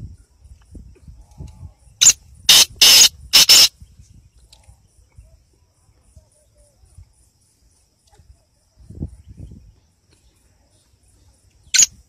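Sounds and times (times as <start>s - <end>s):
francolin harsh grating call: 2.0s - 3.7s, 11.7s - 11.9s.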